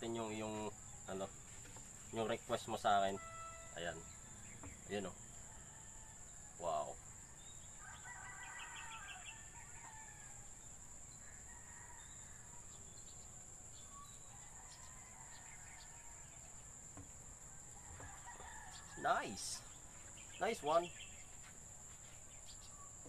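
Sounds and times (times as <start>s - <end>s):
high-pitched insect drone: 2.4s - 5.2s
rooster crowing faintly: 4.8s - 10.5s, 17.5s - 19.6s.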